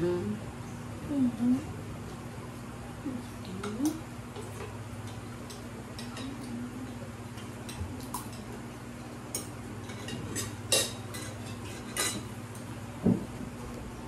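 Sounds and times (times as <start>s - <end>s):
cutlery clinking on plates: 9.3s - 12.7s.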